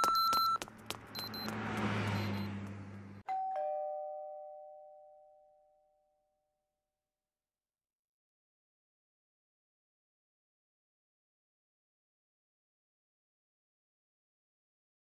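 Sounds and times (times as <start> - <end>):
two-note ding-dong chime: 3.3 - 6.0.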